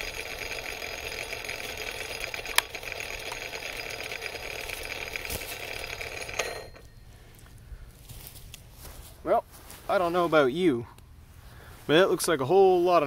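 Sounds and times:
chainsaw idling: 0.0 - 7.5.

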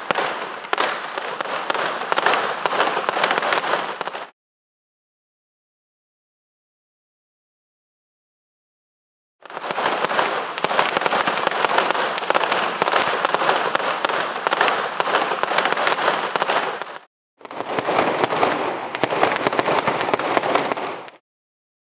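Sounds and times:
fireworks crackling and popping: 0.0 - 4.4, 9.4 - 21.2.

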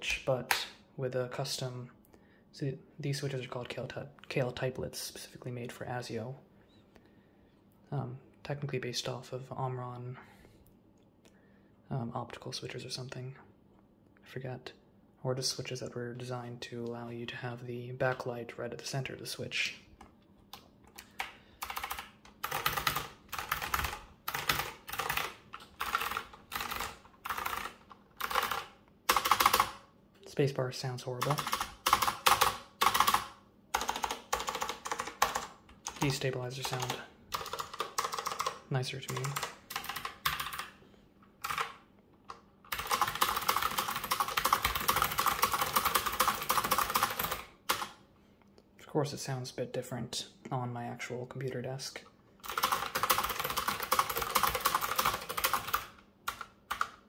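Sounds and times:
clicky keyboard typing: 20.5 - 29.8, 31.2 - 40.8, 41.4 - 48.0, 52.4 - 57.0.

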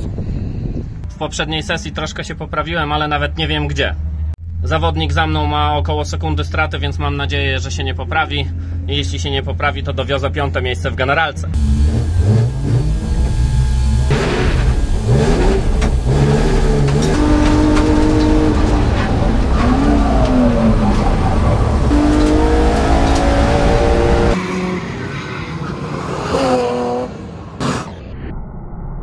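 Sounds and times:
car engine revving: 11.6 - 28.0.

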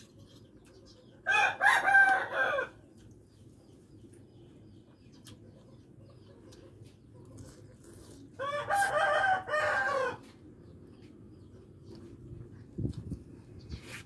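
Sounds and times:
rooster crowing: 1.2 - 2.8, 8.4 - 10.3.

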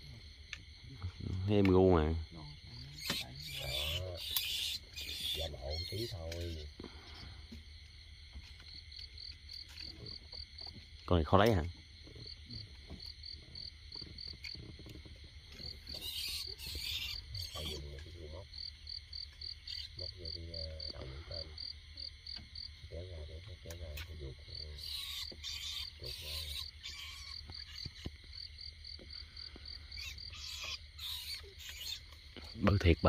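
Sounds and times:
insects chirping: 0.0 - 33.0.

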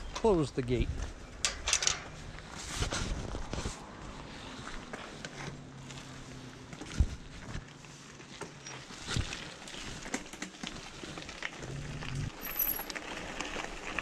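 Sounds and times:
bicycle tyres on gravel: 2.1 - 14.0.

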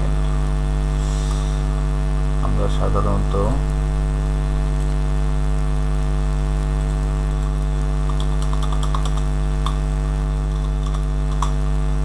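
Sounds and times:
electrical mains hum: 0.0 - 12.0
keyboard clicks: 6.8 - 9.8, 10.5 - 11.6.

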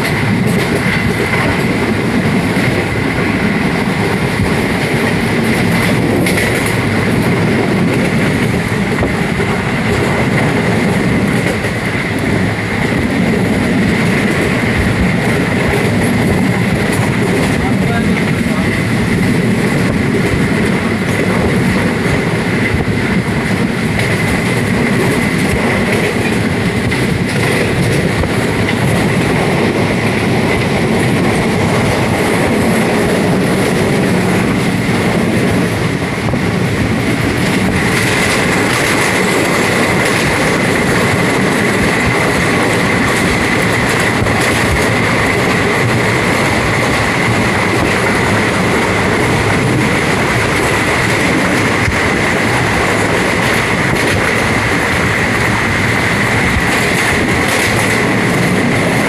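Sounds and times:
train rumbling on rails: 0.0 - 59.0.

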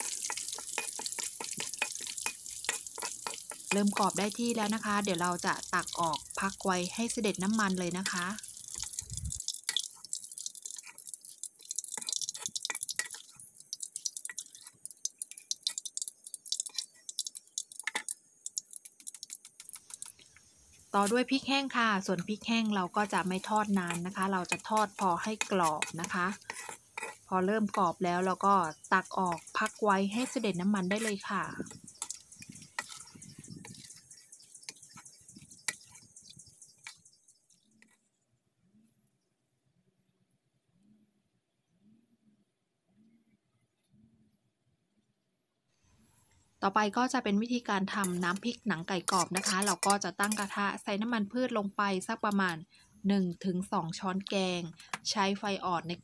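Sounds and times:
oil dripping from strainer: 0.0 - 20.3
sharp clicks and crackles: 0.0 - 20.4, 22.1 - 37.1, 47.8 - 50.6
hot oil sizzling and popping: 0.0 - 38.0, 46.6 - 52.6, 53.3 - 56.0.

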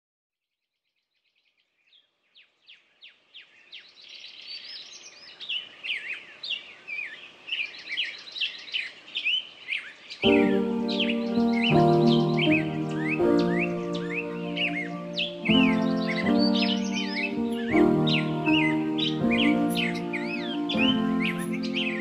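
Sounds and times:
birds chirping and warbling: 1.0 - 22.0
music with held notes: 10.2 - 22.0.

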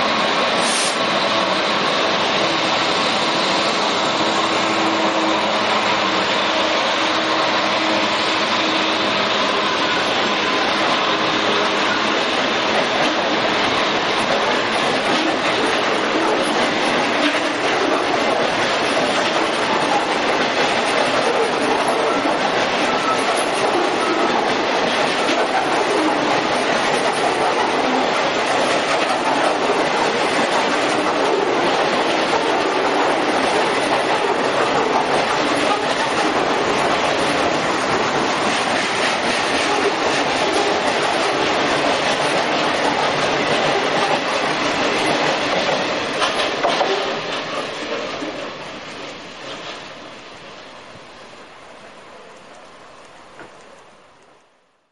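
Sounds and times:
freight train wheels clattering: 0.0 - 48.4.

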